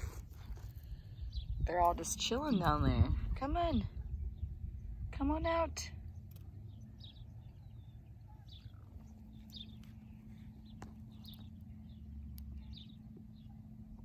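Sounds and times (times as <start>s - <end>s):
wind rumble on microphone: 0.0s - 12.0s
small bird chirping: 6.0s - 13.6s.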